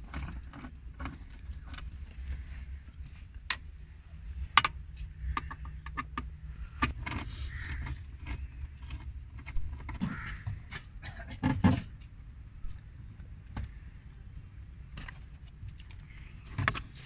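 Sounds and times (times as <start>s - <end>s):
low steady hum: 0.0s - 17.0s
clicks and knocks of car parts: 4.5s - 13.9s, 14.9s - 17.0s.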